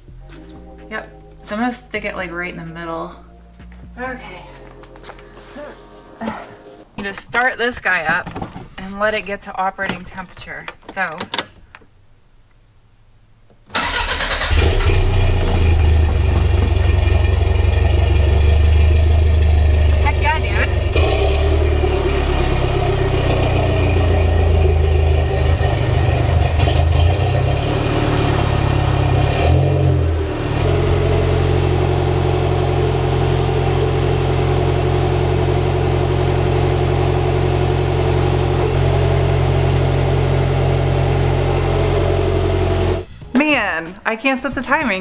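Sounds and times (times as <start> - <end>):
car engine idling: 13.7 - 43.1.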